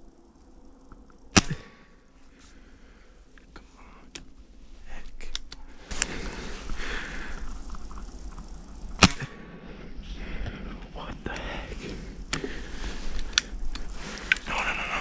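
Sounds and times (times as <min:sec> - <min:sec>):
air rifle shot crack: 0:01.3 - 0:01.9, 0:09.0 - 0:09.4
rustling: 0:02.0 - 0:15.0
rifle handling clicks: 0:05.0 - 0:06.2, 0:13.1 - 0:14.5.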